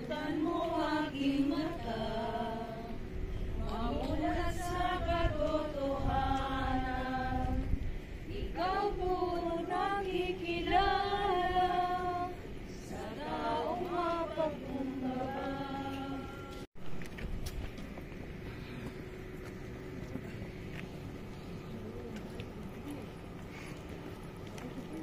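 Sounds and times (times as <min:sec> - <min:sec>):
group singing a hymn: 0:00.0 - 0:16.7.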